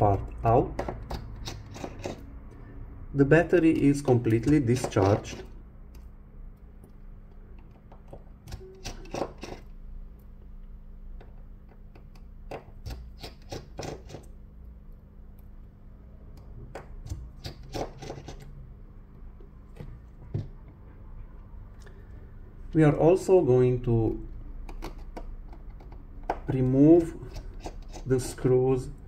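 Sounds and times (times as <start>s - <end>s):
screwdriver and screws clicking on metal: 0.7s - 2.2s, 7.6s - 9.7s, 24.7s - 28.5s.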